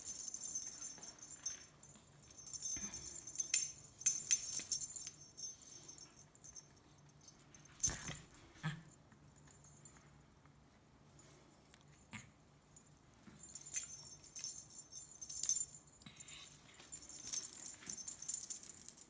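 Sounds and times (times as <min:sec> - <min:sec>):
metal collar jingling: 0:00.0 - 0:08.2, 0:13.4 - 0:19.0.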